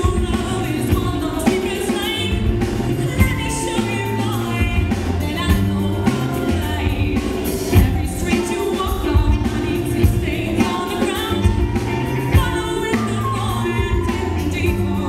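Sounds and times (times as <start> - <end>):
live rock-pop band playing: 0.0 - 15.0
woman singing into a microphone: 0.0 - 15.0.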